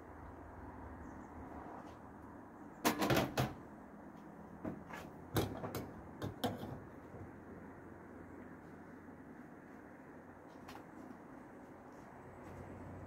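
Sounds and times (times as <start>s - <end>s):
hard objects knocking and clattering: 4.6s - 6.8s.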